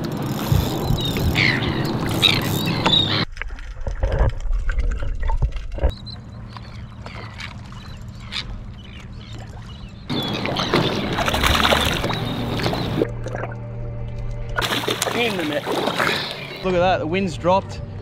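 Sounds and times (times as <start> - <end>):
wind and water around boat: 0.0 - 18.0.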